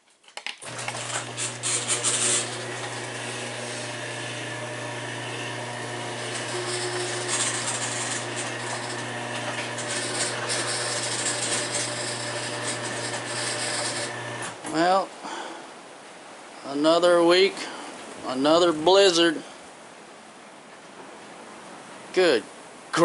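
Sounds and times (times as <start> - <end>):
garage door motor hum: 0.6 - 14.7.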